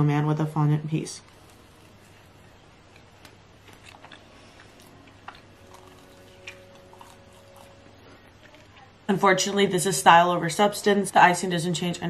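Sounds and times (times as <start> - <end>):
faint room hum: 0.0 - 12.0
person chewing: 1.3 - 8.9.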